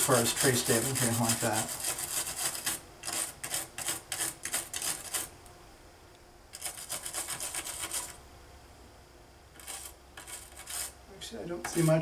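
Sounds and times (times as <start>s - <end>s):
stiff brush scrubbing: 0.0s - 5.3s, 6.6s - 8.2s, 9.6s - 12.0s.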